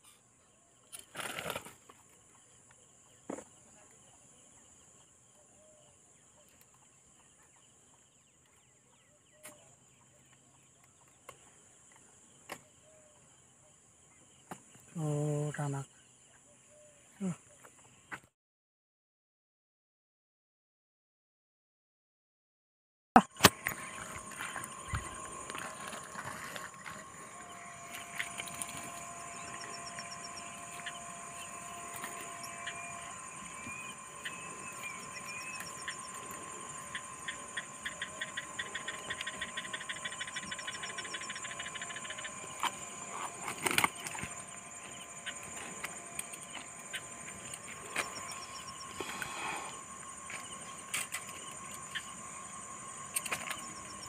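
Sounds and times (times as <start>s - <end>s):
insects droning: 0.0s - 18.2s, 23.3s - 54.0s
rapid pulsing insect trill: 23.5s - 54.0s.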